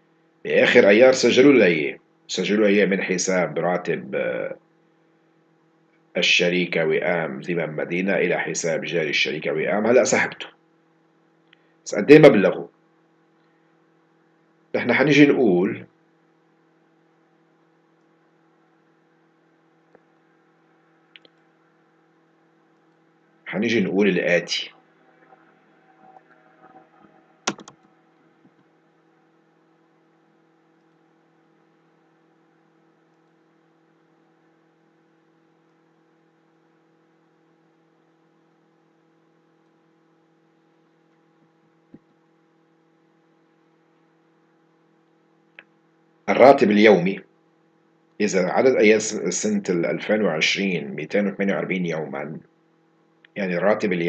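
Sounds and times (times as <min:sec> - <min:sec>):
faint electrical hum: 0:00.0 - 0:54.0
computer mouse clicks: 0:27.4 - 0:28.7.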